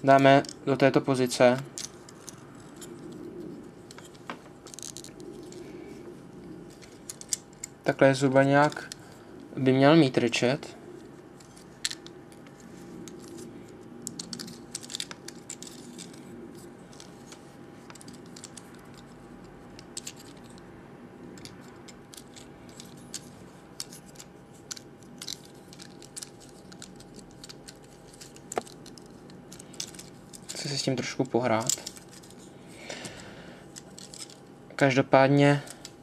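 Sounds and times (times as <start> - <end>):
faint steady hum: 0.0 - 36.0
plastic toy joints clicking: 22.1 - 30.7.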